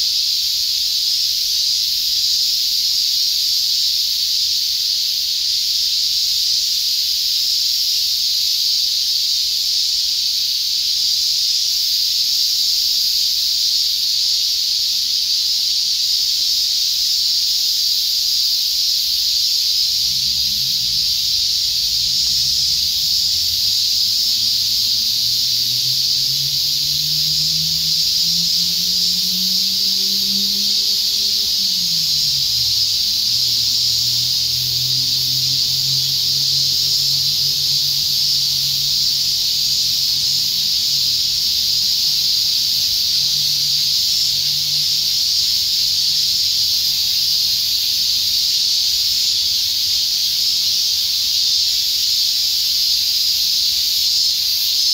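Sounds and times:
cicadas droning: 0.0s - 54.9s
low engine-like hum: 19.8s - 45.3s.

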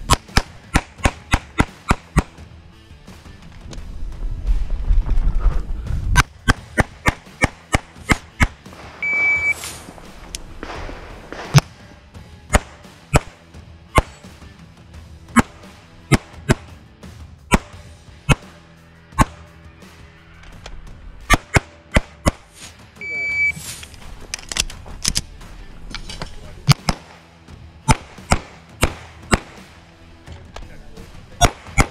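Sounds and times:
pistol shots: 0.0s - 2.4s, 6.2s - 9.5s, 10.4s - 11.9s, 12.5s - 14.3s, 21.2s - 22.5s, 26.6s - 29.8s, 31.4s - 31.9s
faint music: 0.0s - 31.9s
short electronic beep: 9.0s - 9.6s, 23.0s - 23.6s.

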